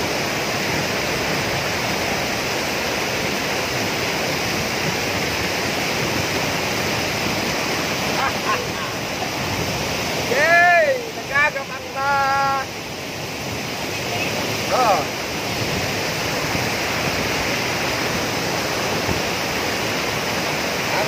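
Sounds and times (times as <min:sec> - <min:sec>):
waterfall rushing: 0:00.0 - 0:21.0.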